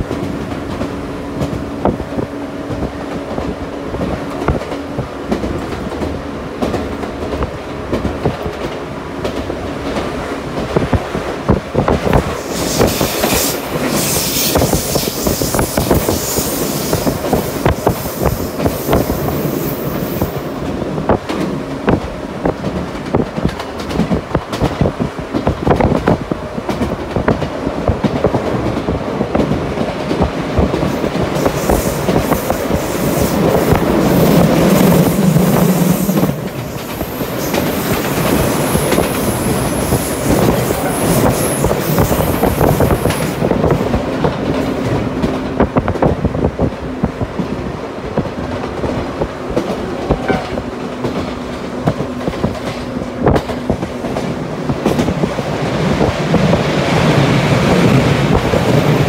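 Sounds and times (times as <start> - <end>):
train wheels rumbling on rails: 0.0 - 59.0
high wheel squeal: 12.4 - 17.2.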